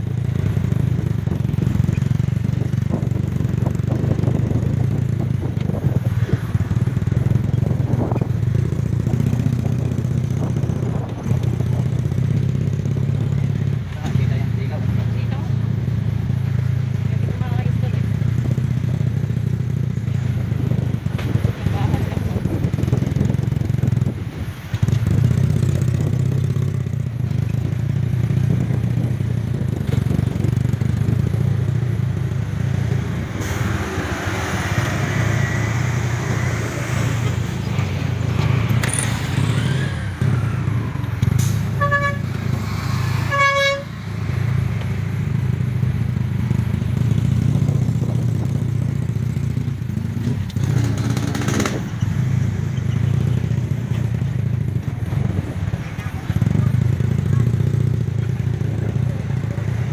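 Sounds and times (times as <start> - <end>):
vehicle engine running: 0.0 - 59.9
short horn beeps: 41.7 - 42.4, 43.3 - 44.0.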